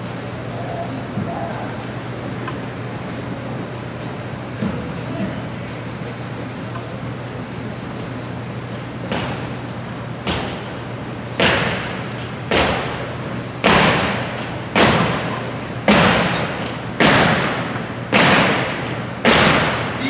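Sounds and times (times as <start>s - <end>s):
marching feet stomping on wooden floor: 13.6s - 19.9s.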